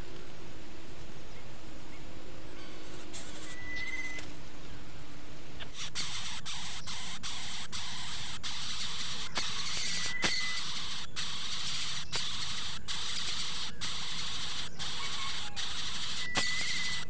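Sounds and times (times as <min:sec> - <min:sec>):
faint tone: 0:01.9 - 0:04.3
nestlings hissing: 0:02.9 - 0:04.2, 0:05.6 - 0:17.0.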